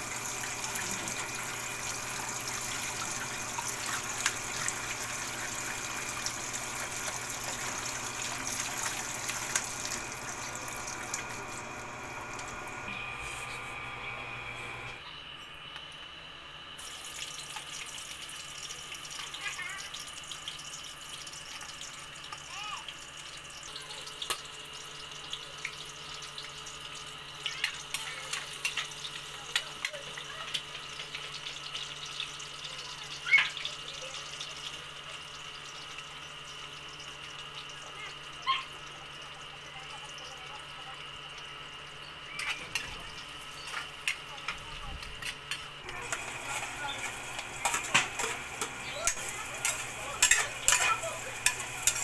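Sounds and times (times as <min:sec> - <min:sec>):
garlic sizzling in oil: 0:00.0 - 0:14.9, 0:16.8 - 0:22.5, 0:45.8 - 0:52.0.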